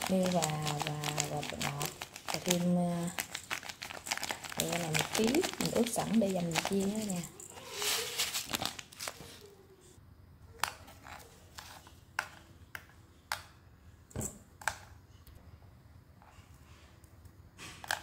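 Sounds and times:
plastic packet crinkling: 0.0s - 9.4s.

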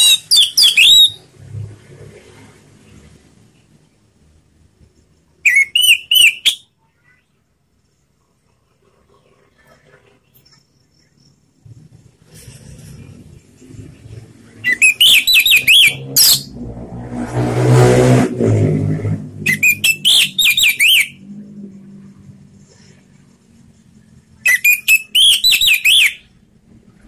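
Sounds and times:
thrush singing whistled notes: 0.0s - 1.3s, 5.4s - 6.8s, 14.6s - 16.6s, 19.4s - 21.2s, 24.4s - 26.4s
low rumbling noise: 11.6s - 20.0s.

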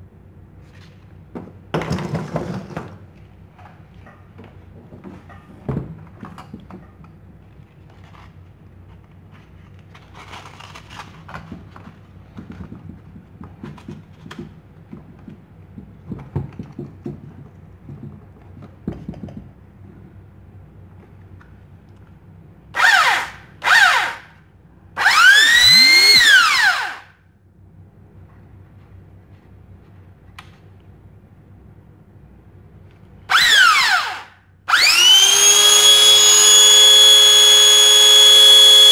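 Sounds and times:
handling knocks and clicks: 10.0s - 19.8s
belt sander motor whine: 25.0s - 27.0s, 33.3s - 38.9s.

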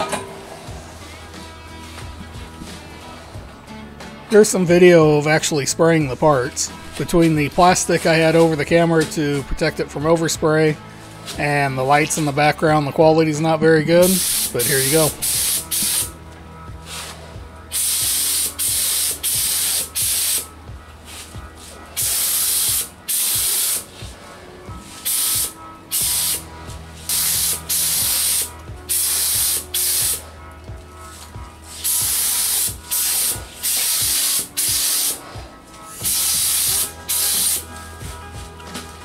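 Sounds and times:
paint spray gun hissing: 14.0s - 16.2s, 17.7s - 20.5s, 22.0s - 24.0s, 24.9s - 30.2s, 31.7s - 35.2s, 35.9s - 37.7s.

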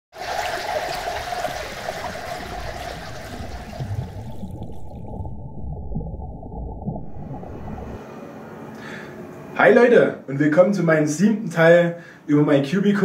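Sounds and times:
rushing water: 0.1s - 5.3s.

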